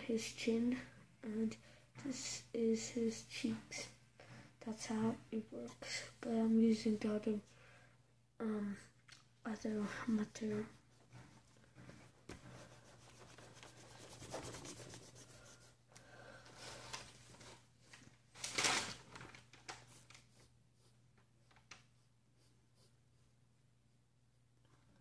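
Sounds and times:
pencil sketching on paper: 10.0s - 15.8s, 19.9s - 21.0s, 21.8s - 23.4s.

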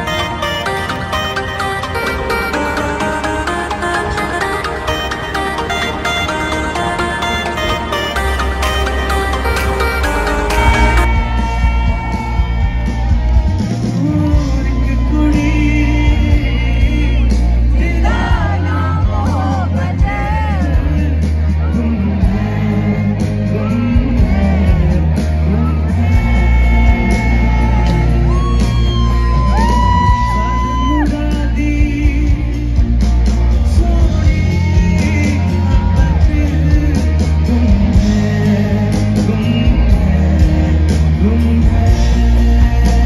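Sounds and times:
live rock band playing: 0.0s - 43.0s
lead singer singing: 13.9s - 43.0s.

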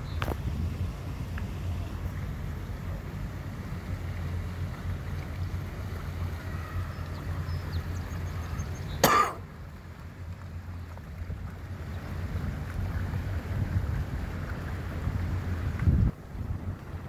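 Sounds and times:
churning water: 0.0s - 17.0s
motorboat engines rumbling: 0.0s - 17.0s
cough: 9.0s - 9.4s.

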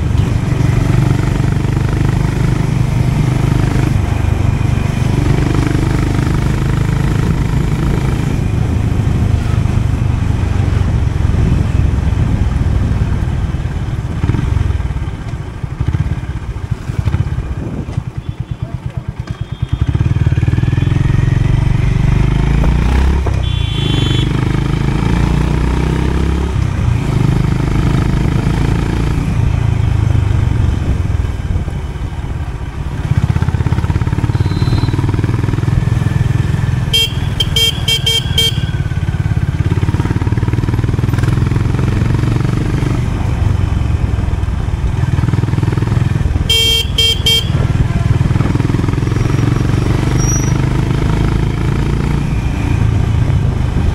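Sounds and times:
motorcycle engine running: 0.0s - 53.9s
horn beeps: 18.2s - 21.2s, 22.9s - 24.5s, 34.1s - 35.4s, 36.8s - 39.3s, 46.4s - 47.8s.

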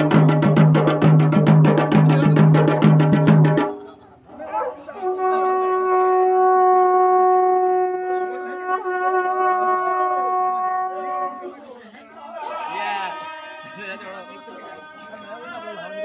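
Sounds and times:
fast even drumming: 0.0s - 3.8s.

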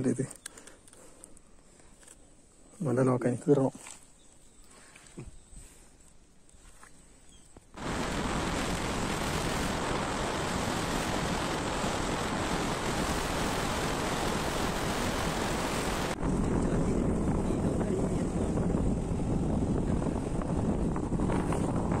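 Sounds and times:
wind rushing over microphone: 7.8s - 22.0s.

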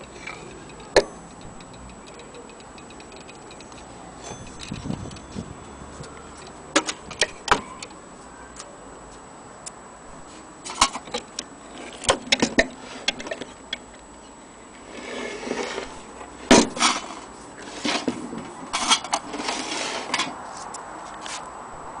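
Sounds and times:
metallic clicks and taps: 0.0s - 3.9s
rubbing and rustling: 14.8s - 21.5s.

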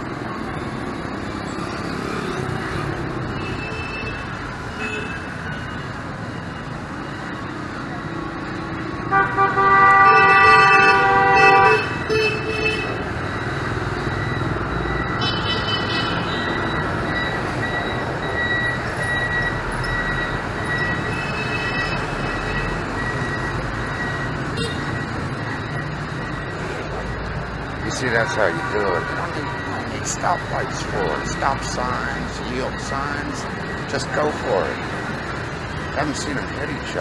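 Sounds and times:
hum of traffic engines: 0.0s - 37.0s
vehicle horns: 3.4s - 5.4s, 9.0s - 13.1s, 15.2s - 16.5s, 24.6s - 25.0s, 27.9s - 29.7s.

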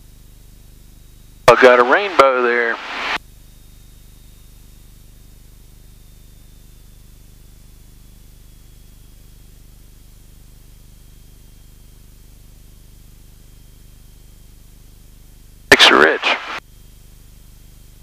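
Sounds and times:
airplane engine droning: 1.5s - 3.2s.

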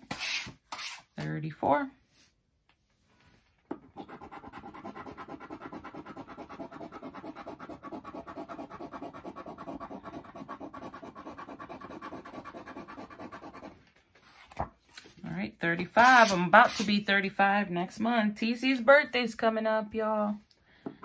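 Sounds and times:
scratcher scraping a scratch ticket: 16.0s - 17.0s.

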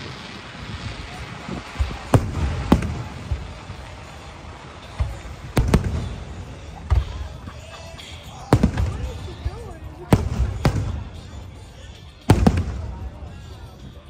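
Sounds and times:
firework shells bursting: 0.0s - 7.4s.

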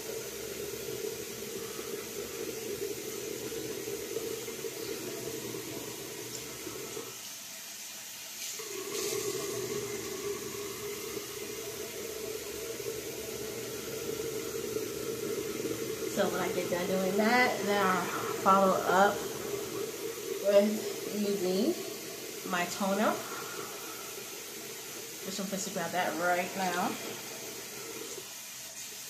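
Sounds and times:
water running from tap into sink: 0.0s - 29.0s.

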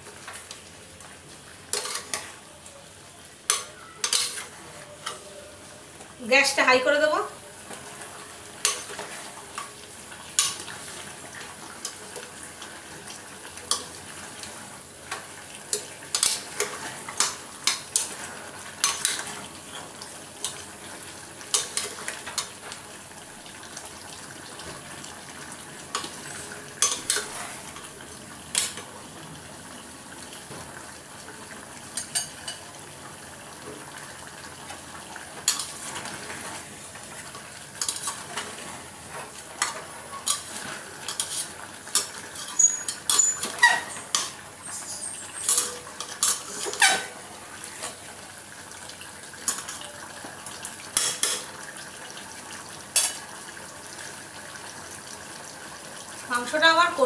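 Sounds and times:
chicken sizzling in a pan: 0.0s - 57.0s
spatula scraping and clinking pan: 1.7s - 2.3s, 3.5s - 5.3s, 37.8s - 38.5s, 39.6s - 47.2s.

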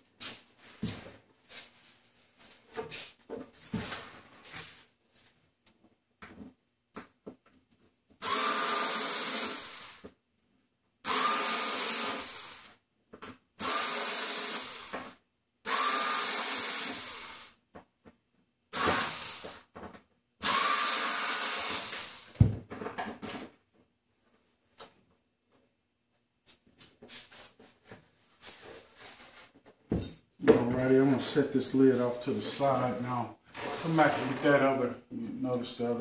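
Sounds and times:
cordless drill motor running: 8.2s - 10.0s, 11.1s - 12.8s, 13.6s - 15.1s, 15.7s - 17.6s, 18.8s - 19.6s, 20.4s - 22.4s.

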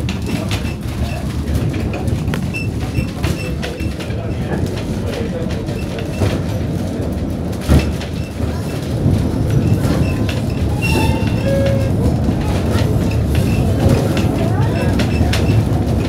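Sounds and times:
train carriage rumble and rattle: 0.0s - 16.0s
wheels clicking over rail joints: 0.0s - 16.0s.

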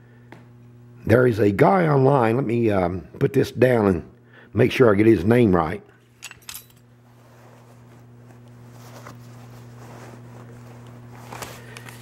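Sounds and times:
steady low hum: 0.0s - 12.0s
soft handling noise: 6.2s - 12.0s.

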